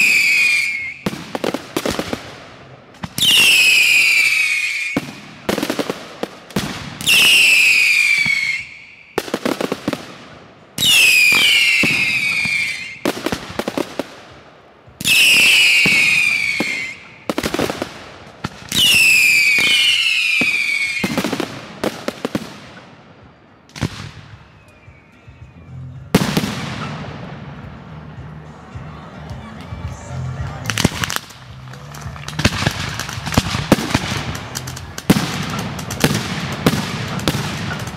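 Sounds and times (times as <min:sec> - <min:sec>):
fireworks shrill whistle: 0:00.0 - 0:02.1, 0:03.1 - 0:05.9, 0:06.8 - 0:09.8, 0:10.8 - 0:13.4, 0:15.0 - 0:17.8, 0:18.7 - 0:21.5, 0:23.7 - 0:27.2
fireworks bangs and crackling: 0:00.0 - 0:37.9.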